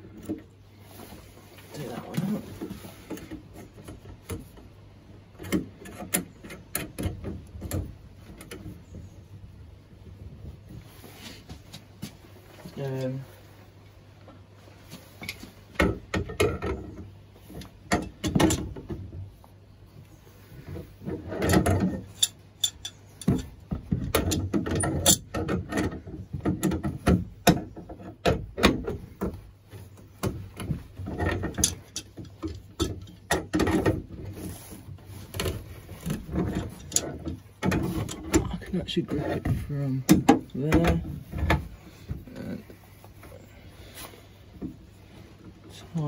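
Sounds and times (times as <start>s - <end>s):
tools clicking and scraping on metal: 5.3s - 8.8s, 21.0s - 29.0s, 30.1s - 34.0s, 35.3s - 39.4s.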